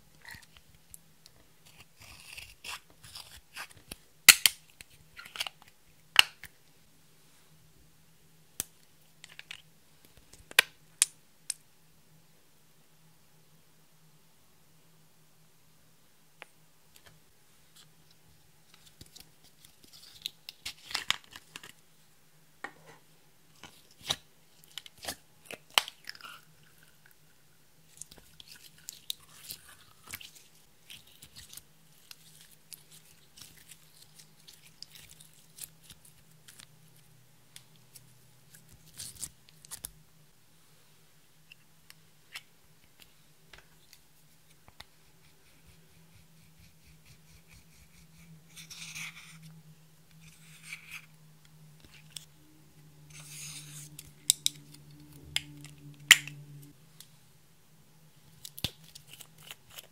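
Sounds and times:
plastic spatula scraping: 45.1s - 49.5s, 53.1s - 55.9s.

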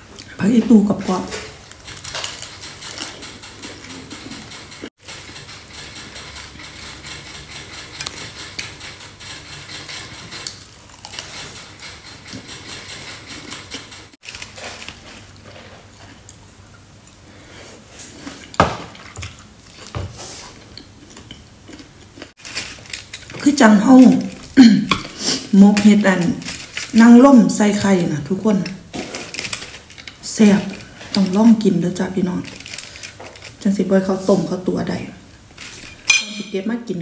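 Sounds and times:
aluminium foil crinkling: 1.0s - 4.2s, 14.2s - 16.3s, 22.2s - 34.5s
metal spoon scraping and clinking: 35.6s - 36.7s.

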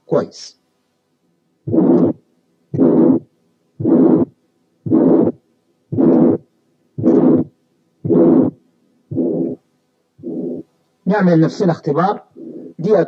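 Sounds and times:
faint steady hum: 0.0s - 13.0s
heart murmur: 1.7s - 2.2s, 2.8s - 4.3s, 4.9s - 6.4s, 7.0s - 7.5s, 8.1s - 9.6s
heartbeat sounds: 7.0s - 7.5s.

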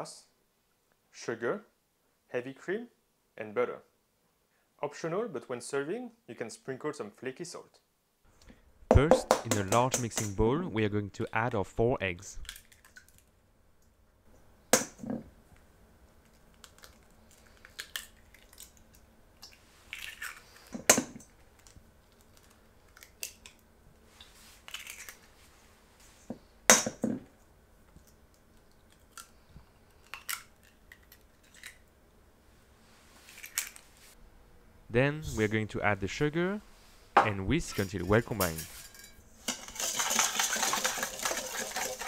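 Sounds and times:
eggshells cracking: 12.4s - 13.3s, 16.2s - 20.8s, 24.6s - 25.3s, 28.5s - 31.8s.

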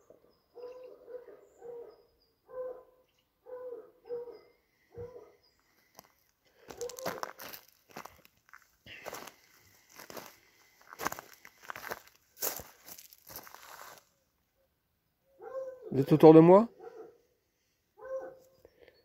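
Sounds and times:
footsteps crunching dry leaves: 5.9s - 14.1s.

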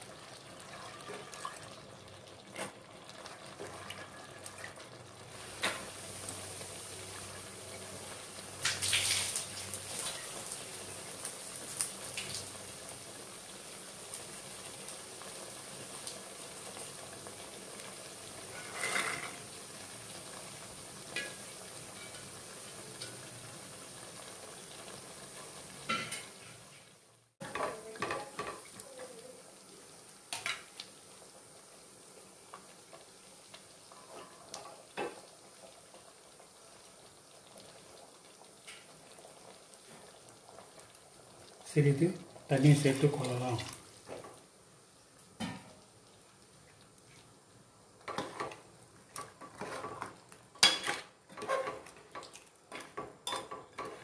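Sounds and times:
gravy sizzling in a pot: 0.0s - 54.0s.

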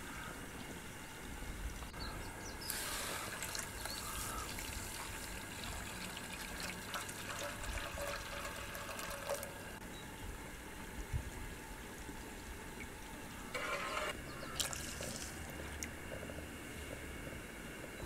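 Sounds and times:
water pouring into metal pan: 2.8s - 9.7s.

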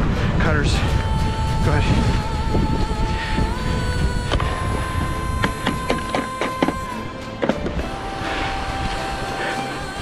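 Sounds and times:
wind buffeting microphone: 0.0s - 6.9s.

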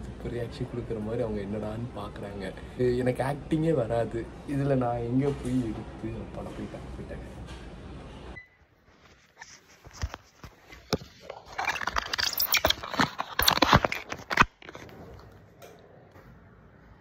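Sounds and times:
crackling rustle: 8.9s - 15.2s.

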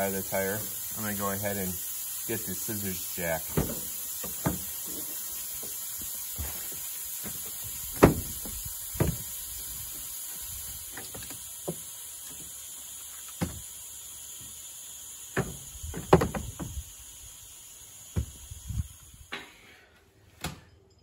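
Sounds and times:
air hissing out of a tire: 0.0s - 19.9s
sharp knocks: 8.0s - 8.3s, 15.4s - 16.7s.

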